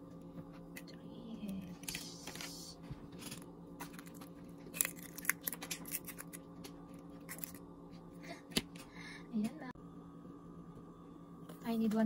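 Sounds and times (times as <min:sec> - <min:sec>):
faint steady hum: 0:00.0 - 0:12.0
eggshell cracking: 0:04.0 - 0:06.5.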